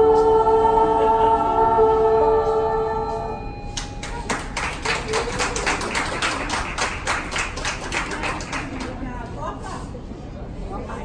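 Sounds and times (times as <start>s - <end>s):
women's choir singing: 0.0s - 3.6s
scattered applause: 3.8s - 9.1s.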